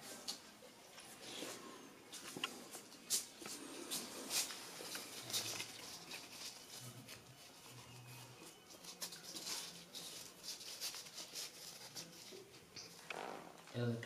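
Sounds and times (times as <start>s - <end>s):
paper rustling and rubbing: 2.7s - 13.5s.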